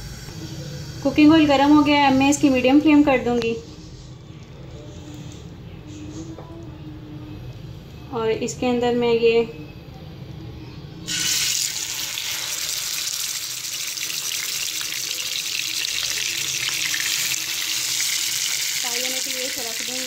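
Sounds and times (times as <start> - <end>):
chicken sizzling in hot oil: 11.1 - 20.0.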